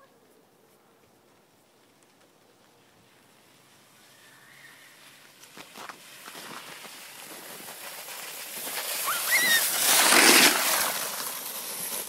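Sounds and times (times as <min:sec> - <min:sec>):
sled scraping over icy snow: 0:02.8 - 0:12.0
brief high squeal: 0:09.0 - 0:09.9.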